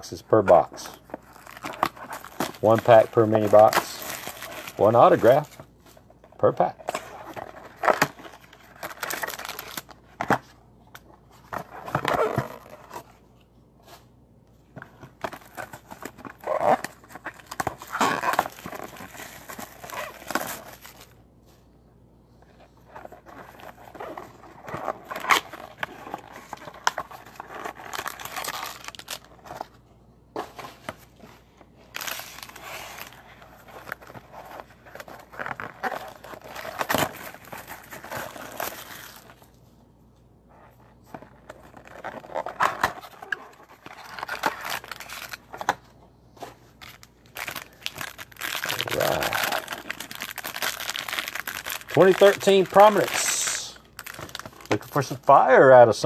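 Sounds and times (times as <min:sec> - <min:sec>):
plastic wrap tearing and crinkling: 0:01.2 - 0:05.6, 0:07.0 - 0:10.0, 0:15.3 - 0:21.2, 0:23.2 - 0:29.4, 0:31.8 - 0:39.5, 0:41.4 - 0:45.8, 0:46.8 - 0:55.2.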